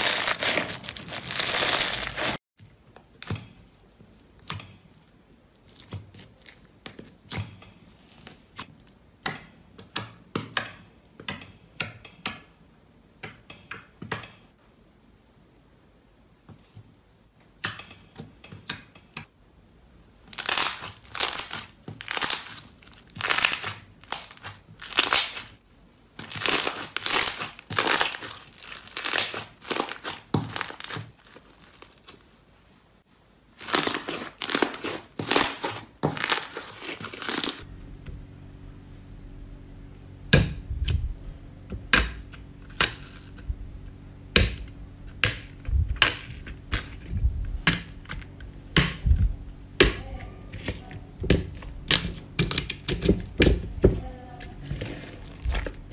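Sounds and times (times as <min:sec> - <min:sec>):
slime stretching and folding: 0:00.0 - 0:02.4, 0:20.3 - 0:25.5, 0:26.2 - 0:32.3, 0:33.5 - 0:37.6
low hum: 0:37.6 - 0:55.9.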